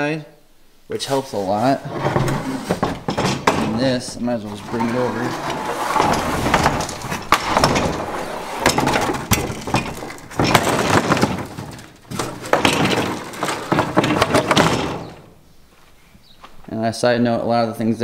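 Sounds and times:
plastic tabletop knocking and scraping: 0:01.9 - 0:03.8.

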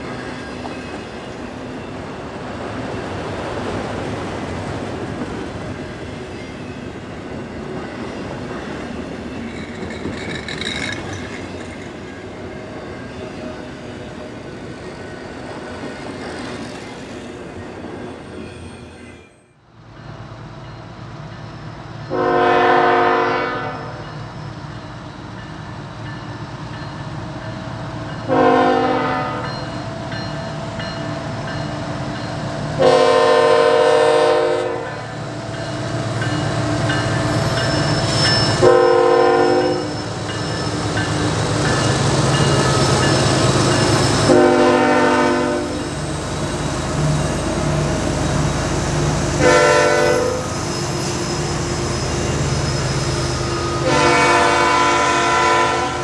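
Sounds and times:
passing train rumble: 0:00.0 - 0:56.0
locomotive air horn blasts: 0:22.1 - 0:24.0, 0:28.3 - 0:29.5, 0:32.8 - 0:35.1, 0:38.6 - 0:39.9, 0:44.3 - 0:45.8, 0:49.4 - 0:50.5, 0:53.8 - 0:56.0.

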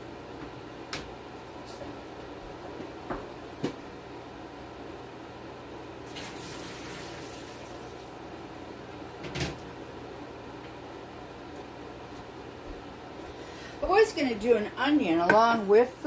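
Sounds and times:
steady low hum: 0:00.0 - 0:06.2, 0:07.2 - 0:16.0
water running: 0:06.0 - 0:08.2.

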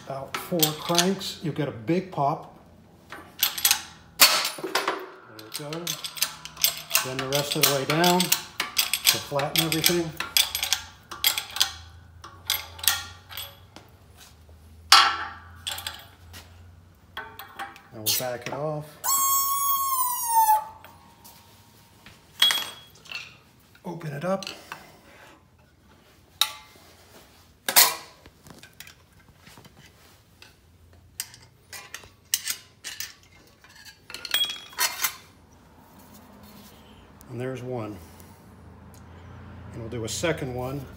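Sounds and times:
hydraulic press metallic clanks: 0:03.1 - 0:13.7.

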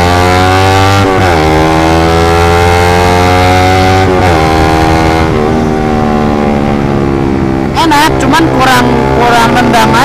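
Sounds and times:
motorcycle accelerating hard: 0:00.0 - 0:10.0.

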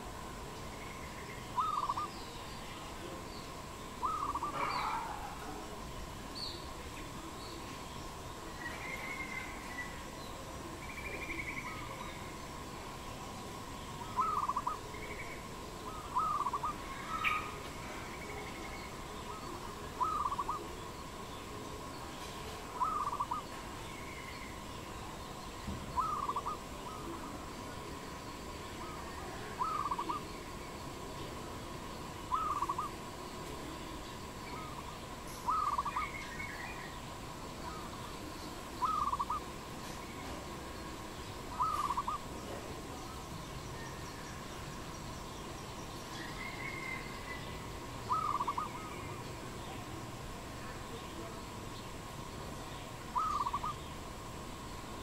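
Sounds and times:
steady faint tone: 0:00.0 - 0:55.0
dove cooing: 0:01.6 - 0:02.1, 0:04.0 - 0:05.8, 0:14.1 - 0:14.9, 0:15.8 - 0:17.4, 0:19.3 - 0:20.8, 0:22.7 - 0:23.5, 0:26.0 - 0:27.2, 0:28.8 - 0:30.3, 0:32.3 - 0:33.0, 0:35.4 - 0:36.1, 0:38.8 - 0:39.5, 0:41.5 - 0:42.3, 0:48.1 - 0:49.0, 0:53.2 - 0:53.8.

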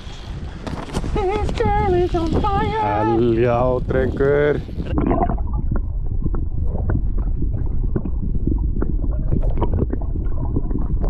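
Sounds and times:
underwater low rumble: 0:00.2 - 0:11.0
water and bubbles clicking: 0:04.8 - 0:11.0.

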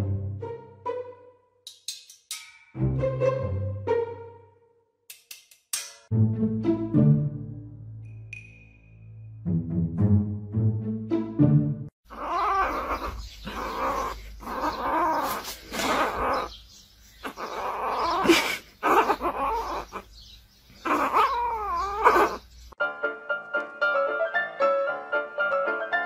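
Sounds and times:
kitten mewing: 0:12.1 - 0:16.5, 0:17.2 - 0:20.1
piano music: 0:22.8 - 0:26.0.

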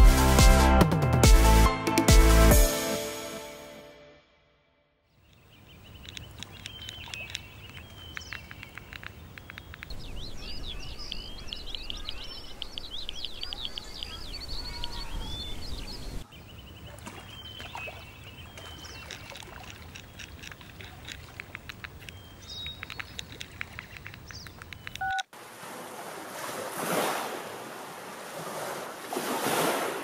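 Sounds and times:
small birds chirping: 0:05.1 - 0:25.3
electronic beeps: 0:25.0 - 0:25.3
waves washing onto shore: 0:25.4 - 0:30.0.

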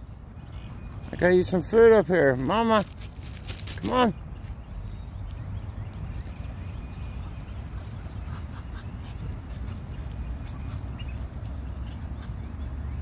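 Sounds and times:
ducklings peeping: 0:03.9 - 0:13.0.

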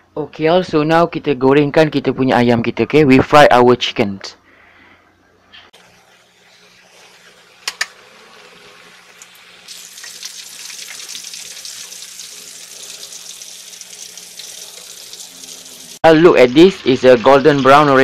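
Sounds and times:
chicken deep-frying in hot oil: 0:05.8 - 0:18.0.

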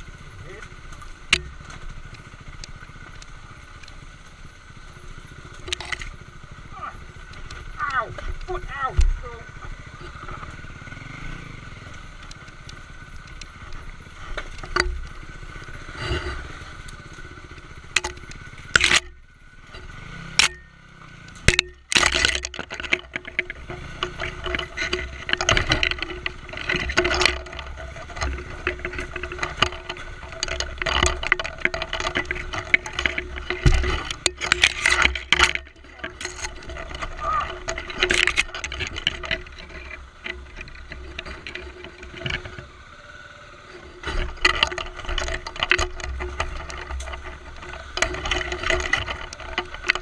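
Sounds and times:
motorcycle engine at low revs: 0:00.0 - 0:50.0
tyres knocking on rocks: 0:21.4 - 0:42.5.

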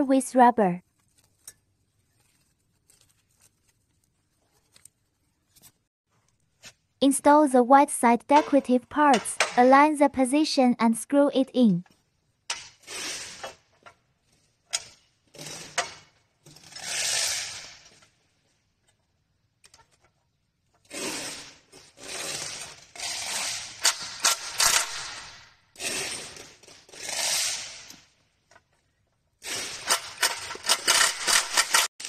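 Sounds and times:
impact driver driving screws: 0:22.1 - 0:27.9, 0:29.5 - 0:31.9.

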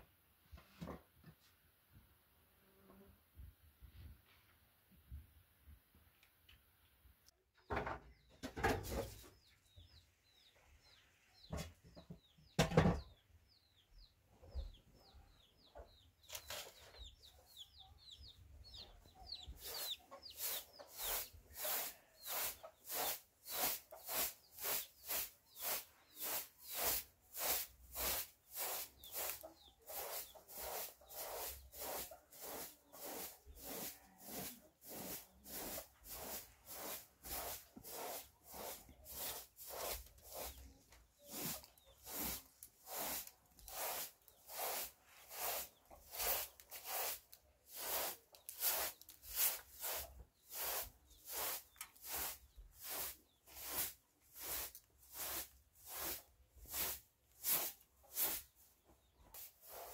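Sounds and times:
chicks cheeping: 0:09.3 - 0:34.3.

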